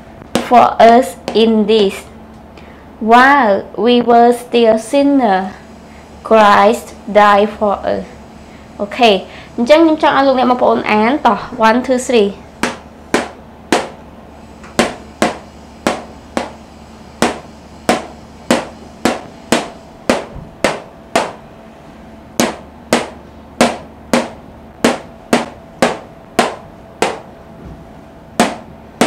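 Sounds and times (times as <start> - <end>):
marker tapping on whiteboard: 12.6 - 13.9, 22.4 - 27.2.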